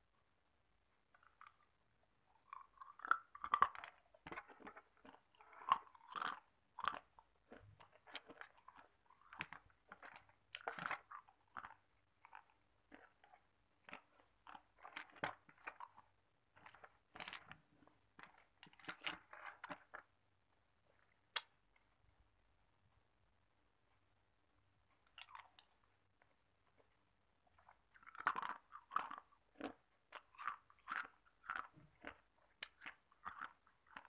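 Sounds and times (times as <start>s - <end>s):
ice cubes crunching being chewed: 1.2s - 20.1s, 25.1s - 25.9s, 27.5s - 34.0s.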